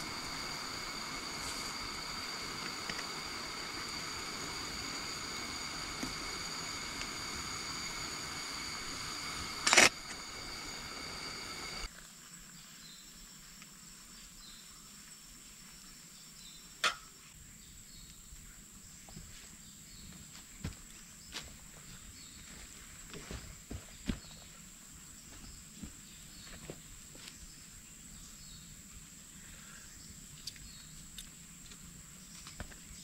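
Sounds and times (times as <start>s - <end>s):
gas stove burner hissing: 0.0s - 11.9s
forest background: 0.0s - 33.0s.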